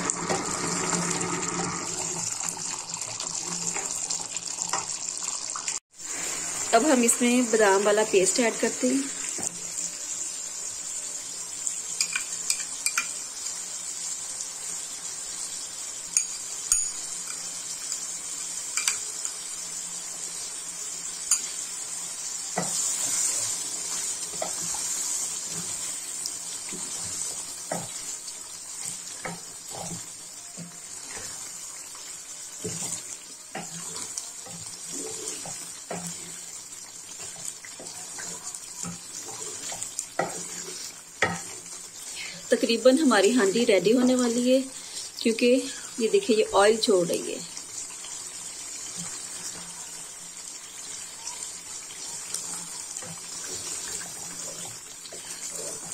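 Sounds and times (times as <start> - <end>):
curry sizzling in a pot: 0.0 - 55.9
wooden spatula scraping a pot: 32.5 - 36.5, 37.1 - 42.0, 52.2 - 55.9.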